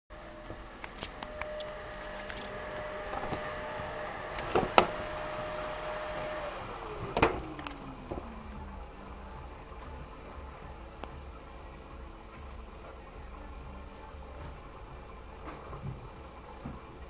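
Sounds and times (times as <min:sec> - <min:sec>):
high electric motor whine: 0:00.1 - 0:17.0.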